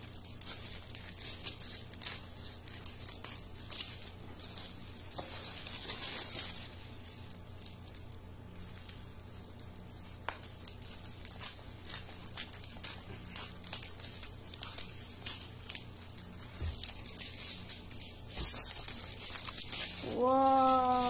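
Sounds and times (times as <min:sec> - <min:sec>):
scissors cutting foil: 0:00.0 - 0:07.8, 0:09.6 - 0:21.0
foil wrap crinkling: 0:00.0 - 0:21.0.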